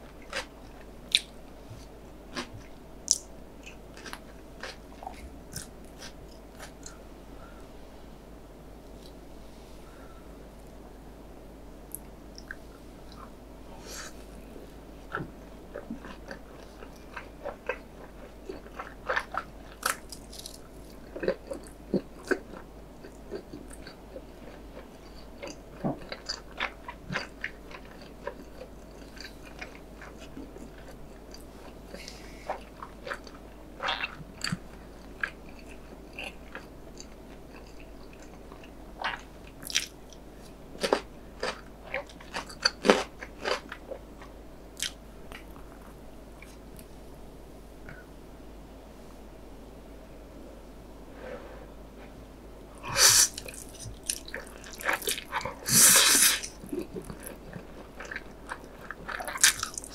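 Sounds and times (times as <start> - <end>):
person chewing crunchy food: 0.0 - 7.0, 15.0 - 46.6, 52.8 - 59.9.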